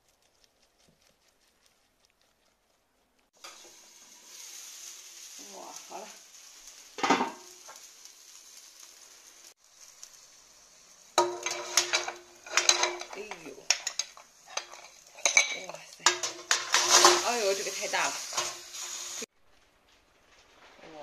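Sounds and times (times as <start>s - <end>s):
faint steady hiss: 0.0s - 21.0s
pot lid clank: 7.0s - 7.4s, 11.2s - 17.3s
metal ladle clinking and scraping: 11.2s - 17.4s.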